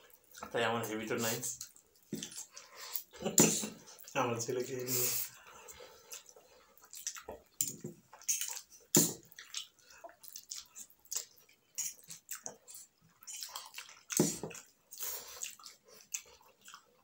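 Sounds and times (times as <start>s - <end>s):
people slurping and chewing noodles: 0.0s - 17.0s.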